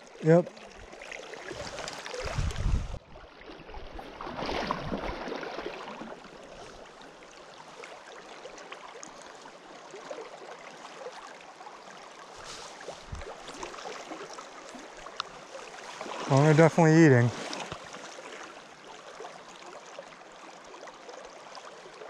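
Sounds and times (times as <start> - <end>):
creek water running: 0.0 - 22.0
small splash with low thump: 1.4 - 3.0, 3.7 - 6.2, 12.5 - 14.2.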